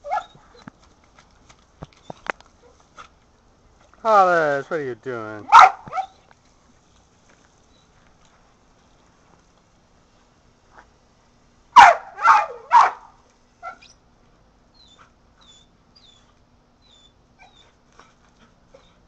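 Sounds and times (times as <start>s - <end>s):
dog barking: 5.5s - 6.2s, 11.8s - 13.8s.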